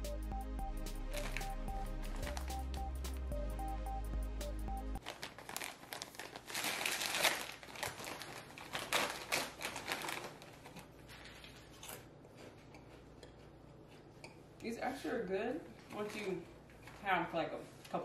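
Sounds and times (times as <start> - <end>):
plastic snack bags crinkling: 1.1 - 2.6, 5.0 - 12.1.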